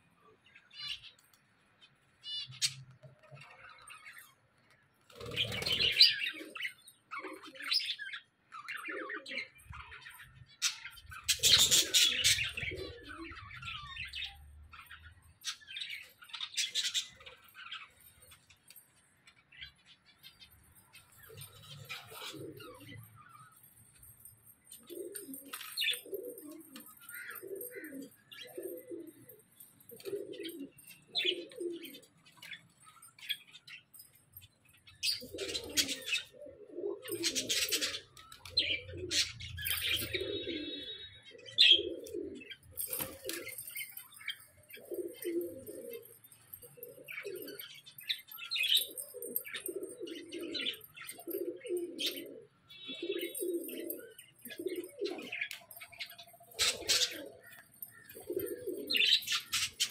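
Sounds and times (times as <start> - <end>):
doves cooing: 5.1 - 17.5, 21.0 - 34.1, 35.0 - 59.9.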